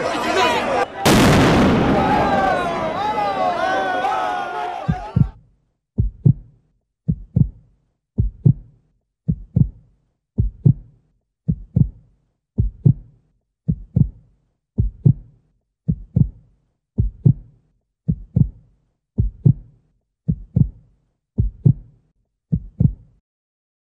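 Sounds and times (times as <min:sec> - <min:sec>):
heartbeat double thump: 0:04.9 - 0:05.4, 0:06.0 - 0:06.5, 0:07.1 - 0:07.6, 0:08.2 - 0:08.7, 0:09.3 - 0:09.8, 0:10.4 - 0:10.9, 0:11.5 - 0:12.0, 0:12.6 - 0:13.1, 0:13.7 - 0:14.2, 0:14.8 - 0:15.3, 0:15.9 - 0:16.4, 0:17.0 - 0:17.5, 0:18.1 - 0:18.6, 0:19.2 - 0:19.7, 0:20.3 - 0:20.8, 0:21.4 - 0:21.9, 0:22.5 - 0:23.1.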